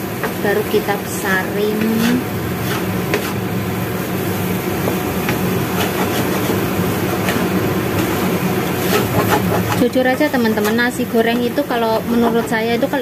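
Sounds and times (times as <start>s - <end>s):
food frying: 0.0s - 13.0s
spatula scraping pan: 1.4s - 3.5s, 4.8s - 13.0s.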